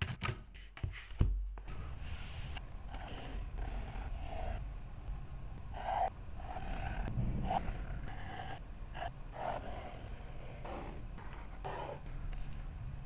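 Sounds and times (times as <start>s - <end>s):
pen strokes on paper: 5.8s - 12.2s.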